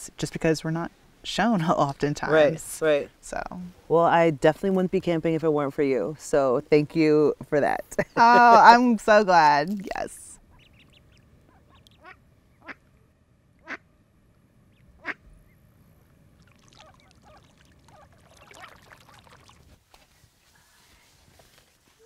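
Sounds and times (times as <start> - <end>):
ducks quacking: 10.5 - 12.9, 13.6 - 13.9, 14.7 - 15.3, 16.7 - 18.7.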